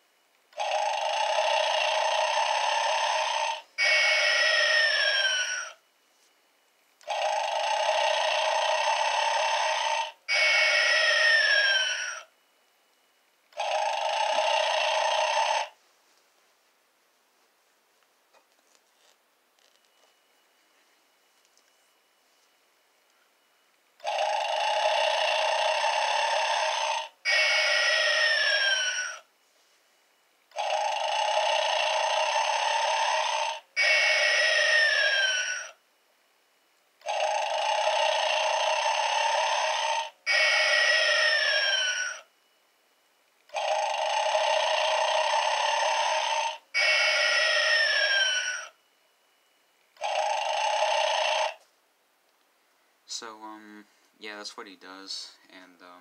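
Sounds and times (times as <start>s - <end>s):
electronic snoring toy: 0.5s - 5.8s, 7.0s - 12.3s, 13.5s - 15.8s, 24.0s - 29.3s, 30.5s - 35.8s, 37.0s - 42.3s, 43.5s - 48.8s, 50.0s - 51.6s.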